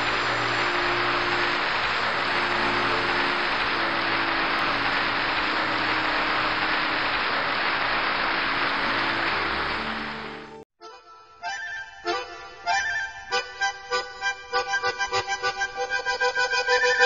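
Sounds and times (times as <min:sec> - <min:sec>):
crowd applauding: 0:00.0 - 0:10.6.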